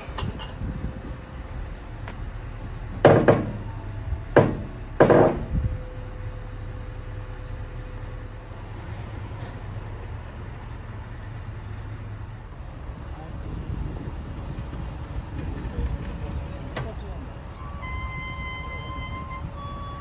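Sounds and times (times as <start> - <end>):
steady low rumble: 0.0 - 19.8
heavy knocks: 3.0 - 3.7, 4.3 - 5.6.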